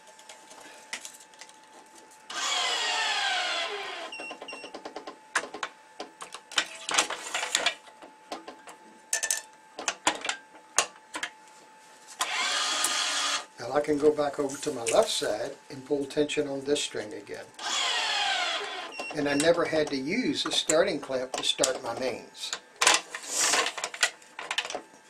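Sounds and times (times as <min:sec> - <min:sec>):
electric tensioner motor running: 0:02.3 - 0:04.5, 0:12.2 - 0:13.5, 0:17.6 - 0:19.6.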